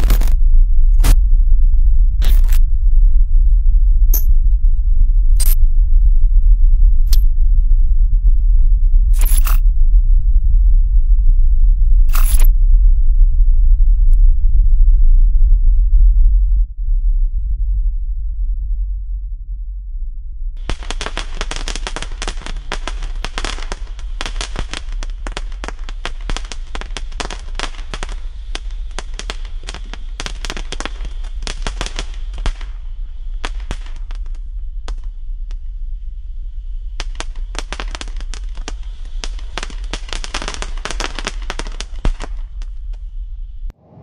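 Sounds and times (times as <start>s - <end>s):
firework fountain crackling: 20.6s - 35.7s, 36.9s - 43.1s.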